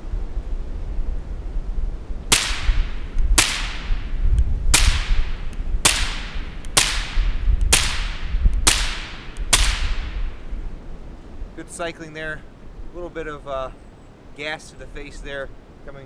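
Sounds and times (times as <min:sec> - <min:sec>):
suppressed pistol shots: 0:02.3 - 0:04.1, 0:04.7 - 0:10.4.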